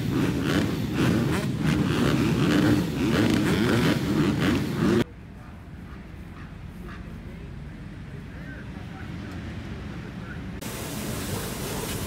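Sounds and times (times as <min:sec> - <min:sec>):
motocross engines revving: 0:00.0 - 0:12.0.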